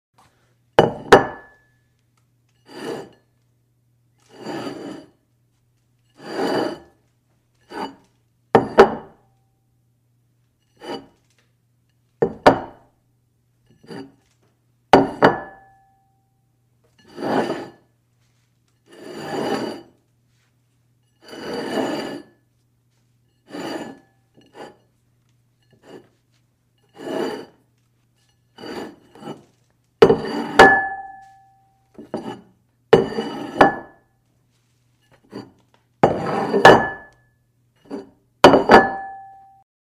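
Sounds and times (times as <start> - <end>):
dish scraping across table: 2.6 - 3.3, 4.3 - 5.2, 6.1 - 7.0, 7.6 - 9.2, 10.7 - 11.2, 13.7 - 14.3, 17.0 - 17.9, 18.8 - 20.0, 21.2 - 22.4, 23.4 - 24.9, 25.6 - 26.2, 26.8 - 27.6, 28.2 - 31.4, 32.0 - 34.0, 35.0 - 37.2, 37.8 - 39.4
clink: 38.8 - 39.6.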